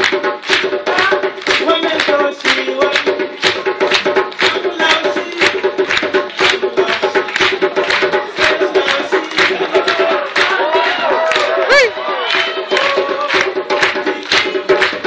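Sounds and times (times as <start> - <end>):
hand drum rhythm: 0.0 - 15.0
person singing: 8.1 - 14.7.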